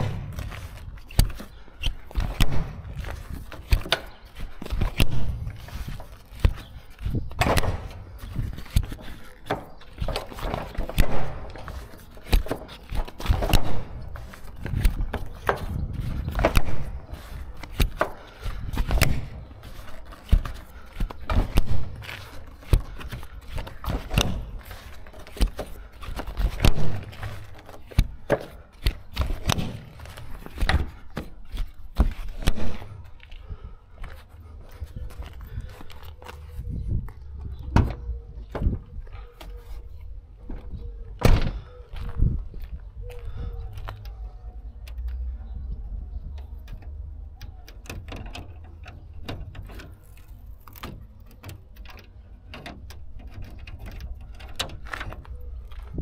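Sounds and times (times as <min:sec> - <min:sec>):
footsteps on tarmac: 0:00.0 - 0:38.0, 0:41.6 - 0:44.3
metal buckles clacking: 0:00.0 - 0:42.1, 0:46.1 - 0:56.0.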